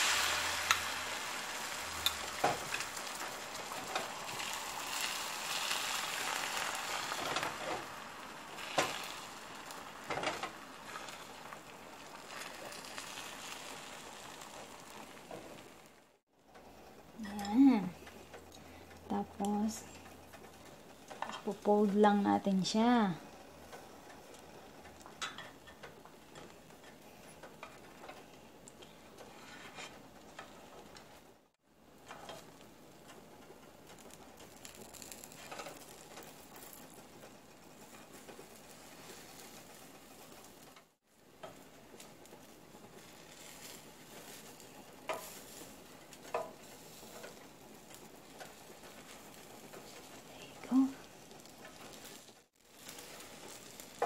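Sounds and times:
egg sizzling in frying pan: 0:00.0 - 0:16.3, 0:17.1 - 0:54.0
spatula and chopsticks tapping pan: 0:41.4 - 0:50.2, 0:52.8 - 0:54.0.

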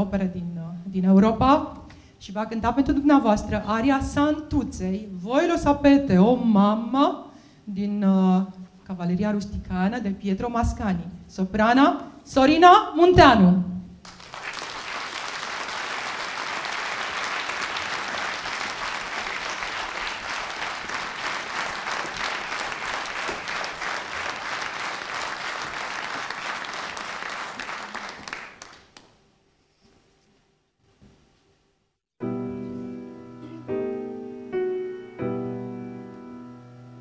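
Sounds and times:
audience clapping: 0:14.0 - 0:29.2.

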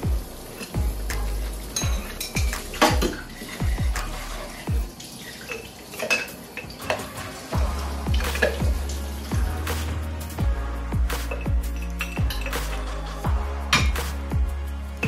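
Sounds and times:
background music with deep bass: 0:00.0 - 0:05.0, 0:06.7 - 0:15.0
dishes and cutlery clinking: 0:01.7 - 0:03.6, 0:05.2 - 0:07.2, 0:11.3 - 0:12.8.

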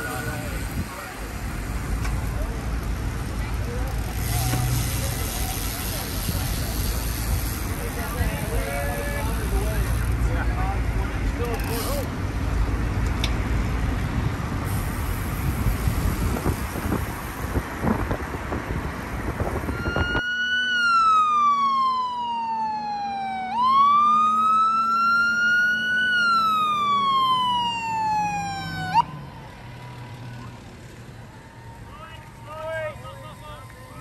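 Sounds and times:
car road and wind noise: 0:00.0 - 0:34.0
fire truck siren wailing: 0:19.6 - 0:34.0.

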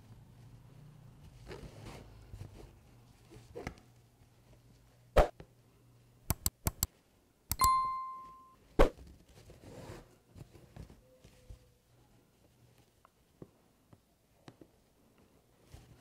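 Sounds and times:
thread swishing through fabric: 0:05.2 - 0:05.4
sharp clicks: 0:06.3 - 0:06.9, 0:07.5 - 0:07.8
short ringing tone: 0:07.6 - 0:08.6.

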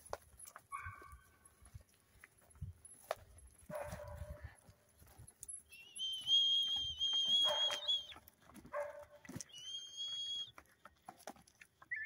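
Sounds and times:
high steady whistle: 0:05.7 - 0:08.1, 0:09.5 - 0:10.5.

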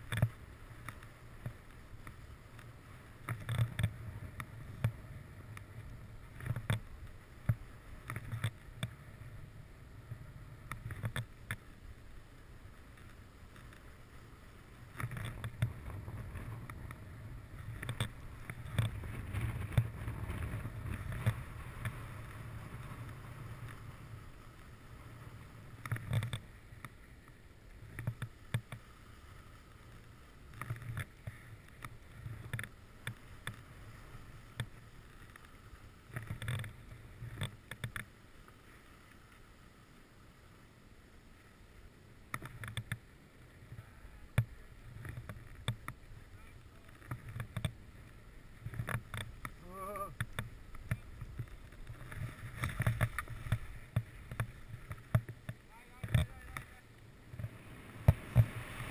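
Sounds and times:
skis scraping over snow: 0:00.0 - 0:58.9.

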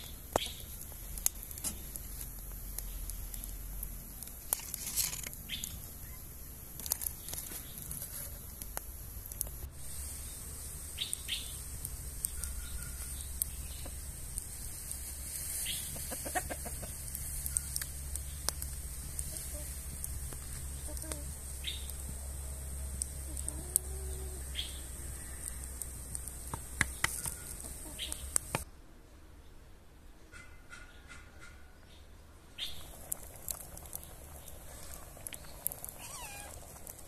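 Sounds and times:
wood fire crackling: 0:00.0 - 0:28.7, 0:32.6 - 0:37.0
chickens clucking: 0:15.6 - 0:17.8, 0:26.8 - 0:28.6.

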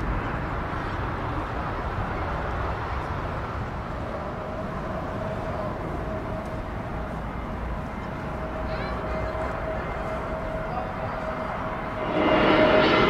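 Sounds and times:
jet engine rumble: 0:00.0 - 0:13.0
steady engine tone: 0:03.6 - 0:13.0.

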